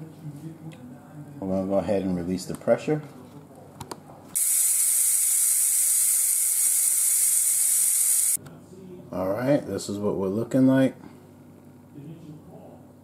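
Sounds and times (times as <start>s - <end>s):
steam venting from valve: 4.4s - 8.4s
valve clicks: 4.4s - 8.4s.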